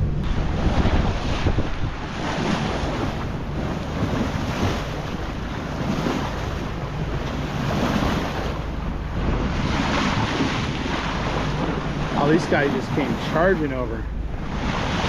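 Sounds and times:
boat engine droning: 0.0 - 15.0
water washing along hull: 0.0 - 15.0
wind buffeting microphone: 0.0 - 15.0.

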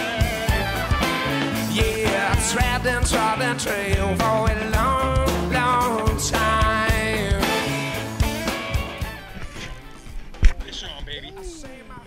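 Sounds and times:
person singing: 0.0 - 8.2
steady drumbeat: 0.0 - 9.5
rock song: 0.0 - 10.3.

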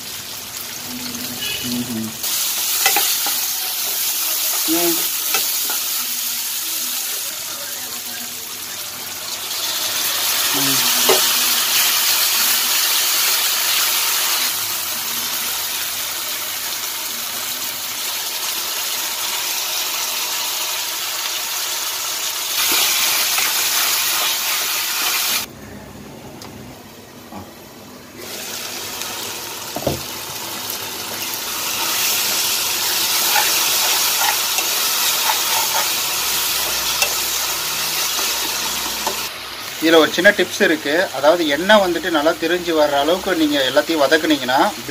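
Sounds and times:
food sizzling in hot oil: 0.0 - 25.5, 28.2 - 44.9
spatula stirring in pan: 2.3 - 4.7, 32.0 - 39.3.

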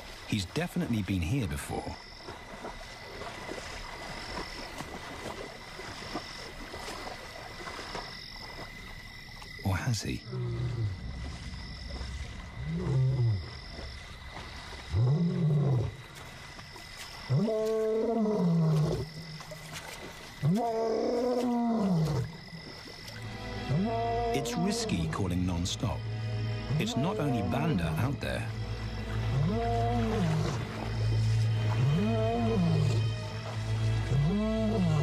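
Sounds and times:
background music with low drone: 9.6 - 16.5, 17.3 - 35.0
lion roaring: 12.6 - 13.5, 14.9 - 16.0, 34.1 - 35.0.

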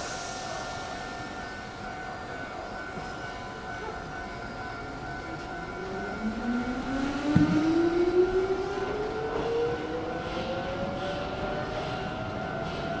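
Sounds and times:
electric train hum: 0.0 - 13.0
rising traction motor whine: 5.5 - 13.0.

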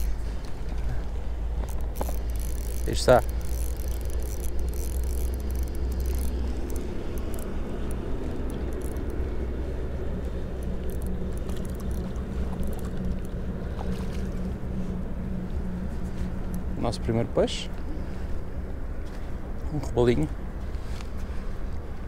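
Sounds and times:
low rumble: 0.0 - 22.0
light clicks: 1.6 - 9.3
fishing reel winding: 1.6 - 13.4.

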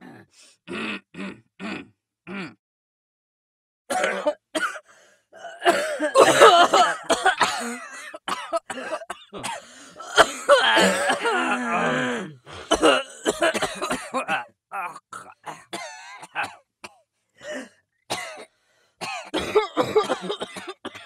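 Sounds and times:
people coughing: 3.9 - 4.8, 5.4 - 16.6, 18.1 - 18.4, 19.0 - 21.0.

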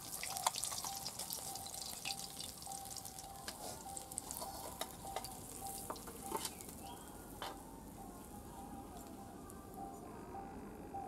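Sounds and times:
fish sizzling in hot oil: 0.0 - 6.8.

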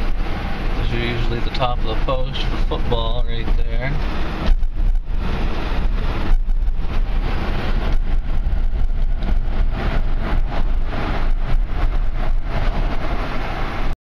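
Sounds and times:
vehicle engine and tyre rumble: 0.0 - 14.0.

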